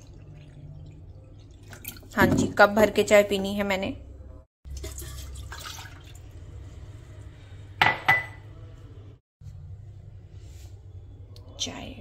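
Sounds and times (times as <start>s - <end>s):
milk trickling into a pot: 0.0s - 2.2s, 4.7s - 6.7s.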